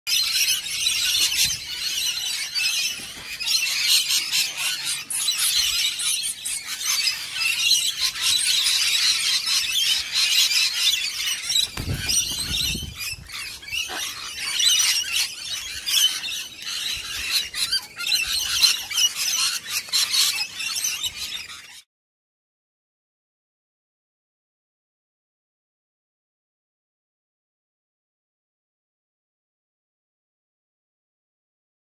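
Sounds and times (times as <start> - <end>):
cockatoos screeching: 0.1 - 21.8
bird wingbeats: 11.2 - 14.5.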